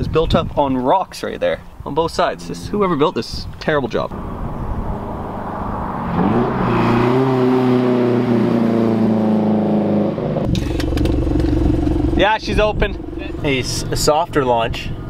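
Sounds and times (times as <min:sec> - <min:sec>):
car exhaust revving past: 0:04.1 - 0:13.9
steady lower exhaust note: 0:07.7 - 0:15.0.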